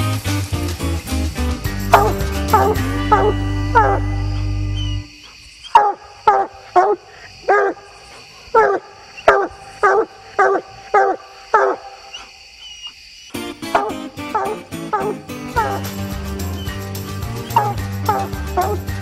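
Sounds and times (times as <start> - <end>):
hound barking: 1.9 - 4.2, 4.8 - 13.0, 13.6 - 15.9, 17.5 - 18.9.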